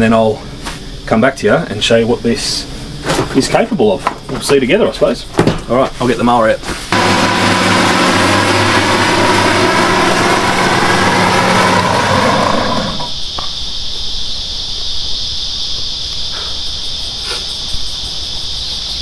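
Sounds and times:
insects droning: 0.0 - 19.0
mower engine running: 6.9 - 13.2.

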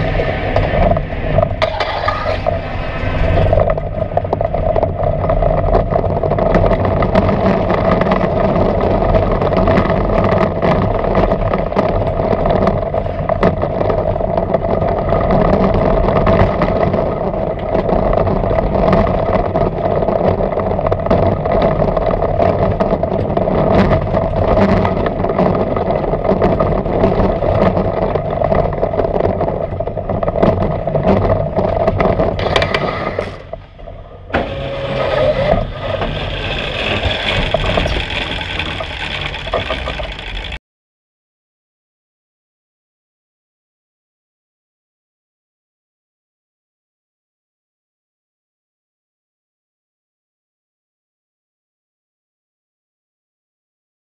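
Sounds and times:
roller coaster rumbling on track: 0.0 - 40.6
small track clacks: 0.0 - 40.6.

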